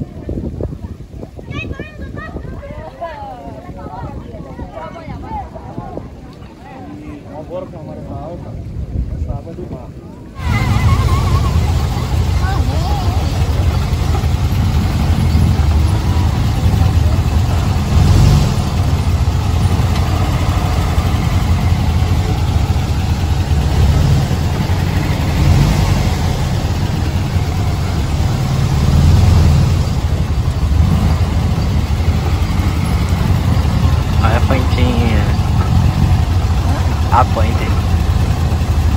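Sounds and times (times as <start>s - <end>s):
dune buggy engine rumbling: 0.0s - 38.9s.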